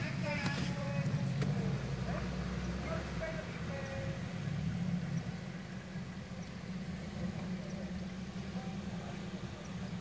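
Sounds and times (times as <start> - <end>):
engine idling: 0.0 - 10.0.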